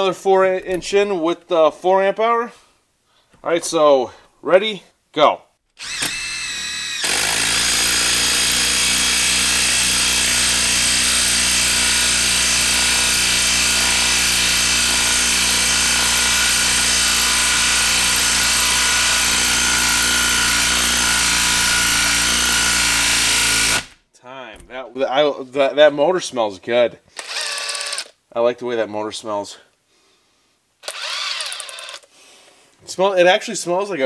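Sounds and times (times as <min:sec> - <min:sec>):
impact driver hammering screw: 0:05.8 - 0:24.0, 0:27.2 - 0:28.1, 0:30.8 - 0:32.0.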